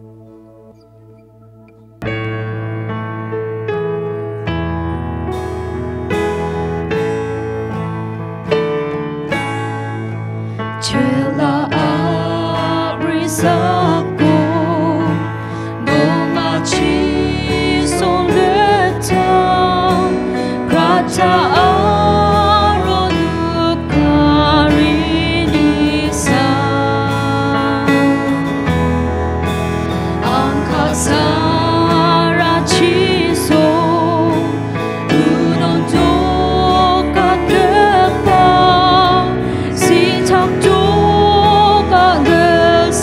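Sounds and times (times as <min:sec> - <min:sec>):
acoustic guitar: 0:00.0 - 0:43.0
woman and man singing: 0:10.8 - 0:28.4, 0:30.2 - 0:43.0.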